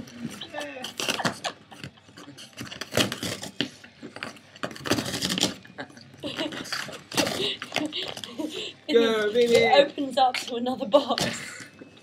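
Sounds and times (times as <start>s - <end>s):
dog tearing cardboard: 0.9s - 5.6s.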